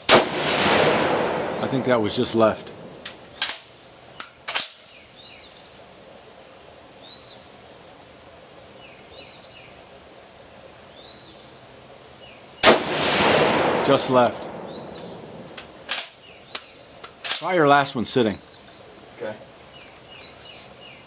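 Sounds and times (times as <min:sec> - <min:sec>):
faint outdoor background: 0:00.0 - 0:21.0
bird chirping: 0:01.4 - 0:04.2, 0:04.8 - 0:05.9, 0:07.0 - 0:08.1, 0:08.7 - 0:09.8, 0:10.9 - 0:12.6, 0:14.6 - 0:15.5, 0:16.1 - 0:21.0.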